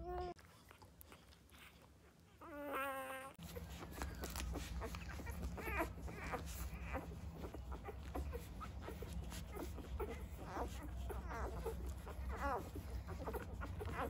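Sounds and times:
puppies squeaking and whimpering: 0:00.0 - 0:14.0
puppies suckling wet clicks: 0:00.2 - 0:14.0.

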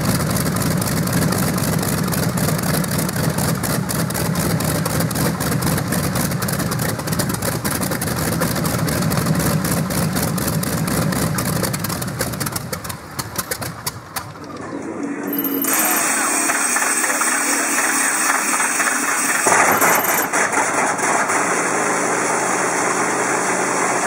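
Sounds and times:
radial engine running: 0:14.4 - 0:24.0.

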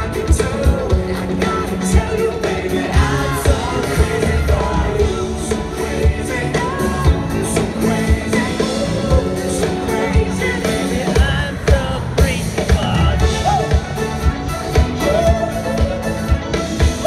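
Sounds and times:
live rock band playing: 0:00.0 - 0:17.0
man singing: 0:00.0 - 0:17.0.

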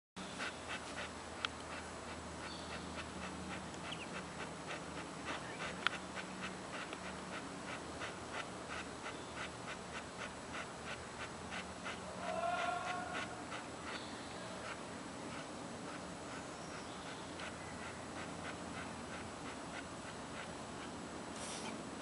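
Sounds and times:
dog panting: 0:00.2 - 0:21.8.

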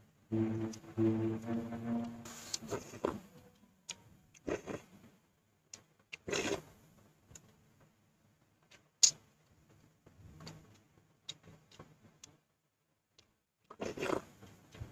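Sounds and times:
close-up eating and chewing: 0:04.3 - 0:04.9, 0:06.1 - 0:06.7, 0:13.2 - 0:14.9.

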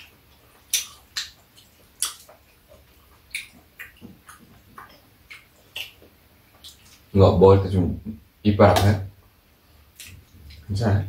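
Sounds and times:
chewing: 0:00.0 - 0:07.1.

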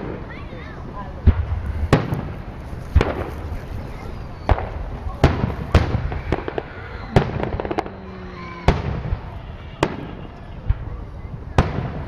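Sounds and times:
firework shells bursting: 0:01.2 - 0:10.8
small firework pops: 0:01.2 - 0:12.0.

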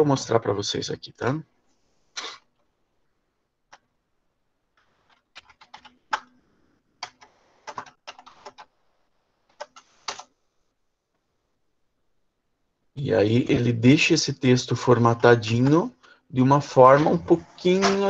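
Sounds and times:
typing on computer keyboard: 0:05.0 - 0:06.4, 0:07.0 - 0:08.7, 0:09.5 - 0:10.3.

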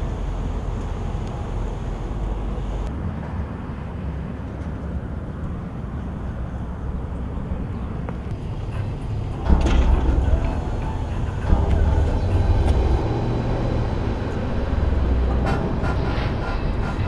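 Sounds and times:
low rumble: 0:06.5 - 0:17.0.

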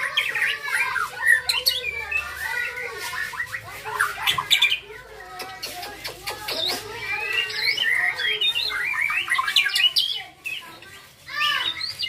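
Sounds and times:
bird singing whistled song: 0:06.6 - 0:10.6, 0:11.4 - 0:12.0.

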